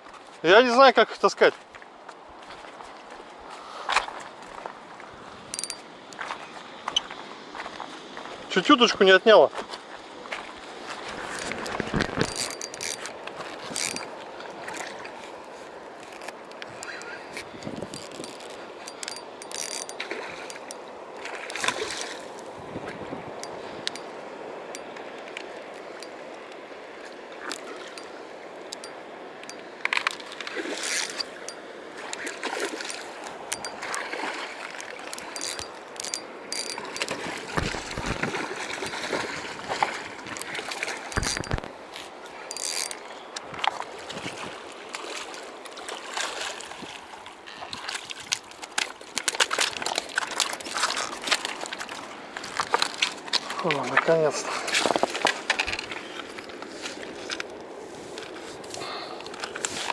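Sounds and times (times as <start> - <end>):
fast river water running: 0.0 - 59.9
water splashes: 10.0 - 59.9
fishing reel clicks: 17.9 - 20.8, 35.2 - 37.2, 42.5 - 43.0.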